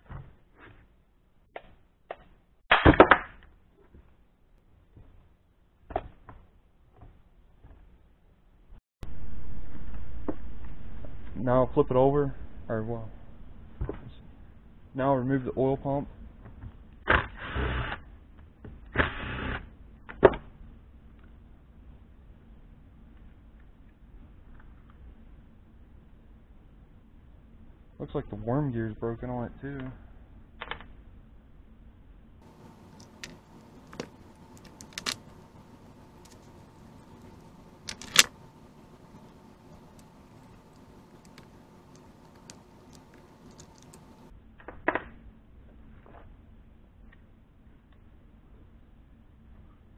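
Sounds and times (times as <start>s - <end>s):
small metal parts clinking: 41.2s - 44.2s.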